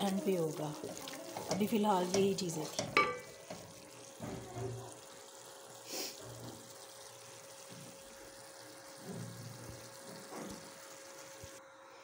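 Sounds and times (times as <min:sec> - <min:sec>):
wooden spoon stirring: 0:00.0 - 0:05.0
onion masala frying in a pot: 0:00.0 - 0:11.9
brief hiss: 0:05.8 - 0:06.2.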